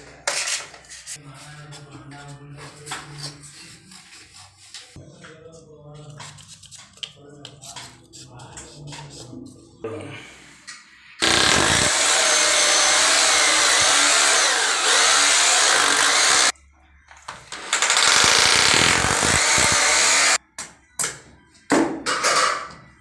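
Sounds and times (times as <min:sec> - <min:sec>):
hammer drill boring into floor: 0:11.2 - 0:16.5, 0:17.5 - 0:20.4.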